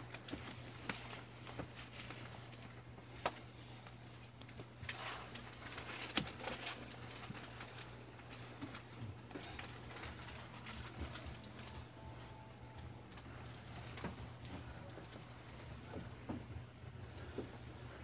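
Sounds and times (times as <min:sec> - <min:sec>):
low hum inside a train: 0:10.3 - 0:18.0.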